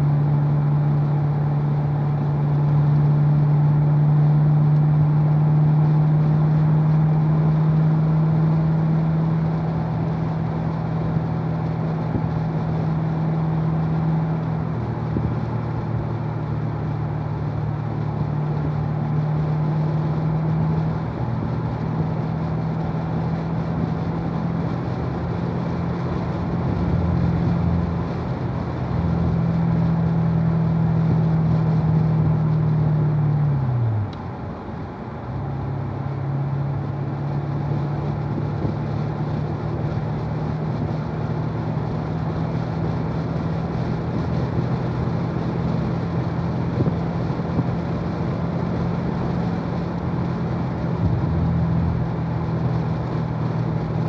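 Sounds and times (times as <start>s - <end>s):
car engine drone cruising: 0.0s - 54.0s.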